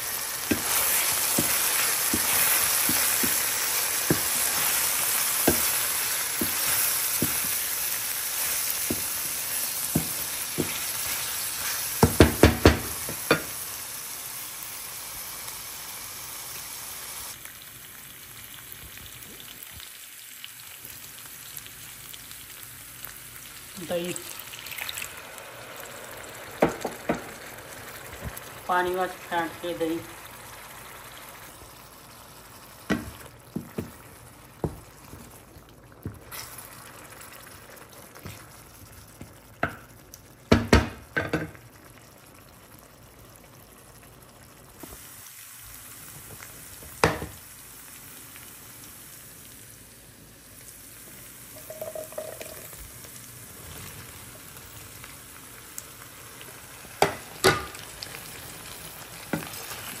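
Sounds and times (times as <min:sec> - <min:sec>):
curry sizzling in a frying pan: 0:00.0 - 1:00.0
knocks against a pan: 0:12.0 - 0:13.5, 0:40.5 - 0:41.6.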